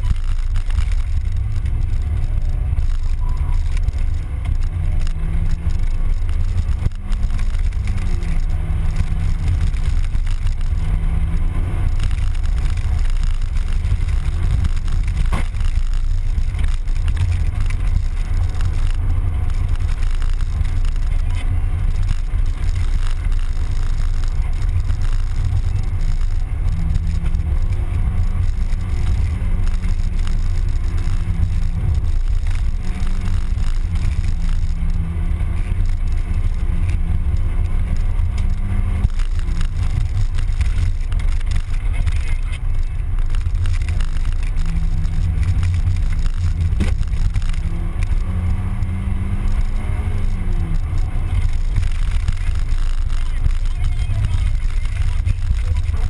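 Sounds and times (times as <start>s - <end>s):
car engine rising and falling: 0.0s - 56.0s
road and wind noise: 0.0s - 56.0s.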